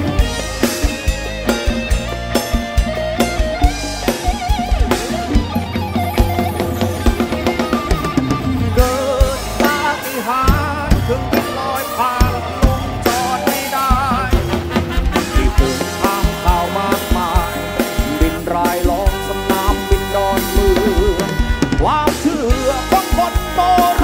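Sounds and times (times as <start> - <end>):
rock band playing: 0.0 - 24.0
wavering lead melody: 0.0 - 24.0.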